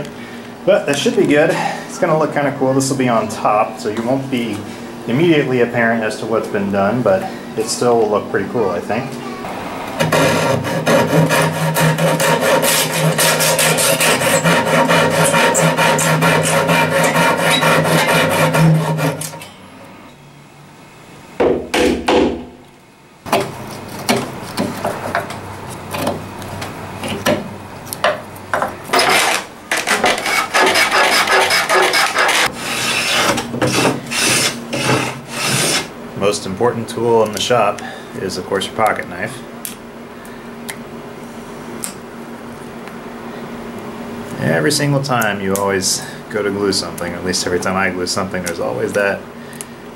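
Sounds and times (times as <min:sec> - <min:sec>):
hand saw cutting wood: 0:10.0 - 0:19.4, 0:28.9 - 0:35.9
rubbing strokes on board: 0:10.1 - 0:19.2, 0:29.9 - 0:35.9.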